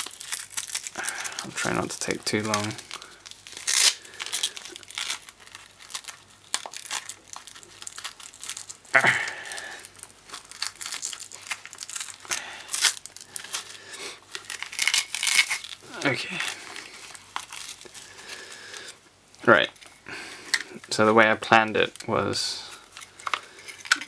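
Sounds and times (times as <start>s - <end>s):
velcro strap ripping apart: 0.0s - 18.5s.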